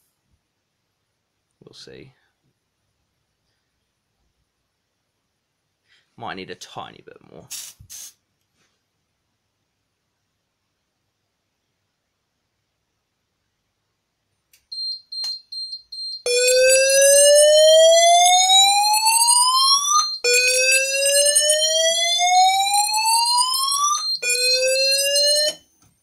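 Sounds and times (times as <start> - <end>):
high rapid beeping: 14.8 - 25.6
electronic sounder whooping: 16.3 - 25.6.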